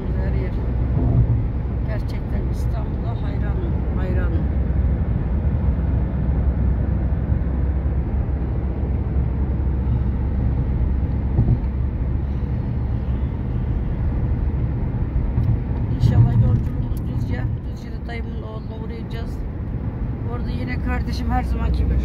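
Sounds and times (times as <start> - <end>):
car road and engine rumble: 0.0 - 22.0.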